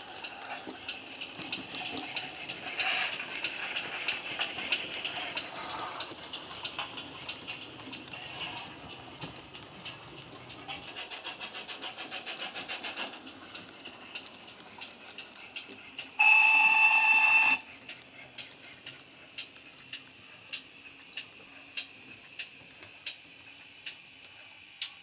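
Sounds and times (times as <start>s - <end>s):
steam locomotive exhaust beats: 0.0s - 25.0s
steam whistle blast: 16.2s - 17.6s.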